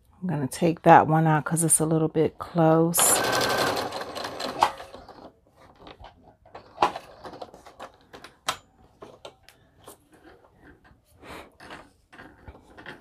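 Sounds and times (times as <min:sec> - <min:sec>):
sewing machine stitching: 0:03.0 - 0:05.4.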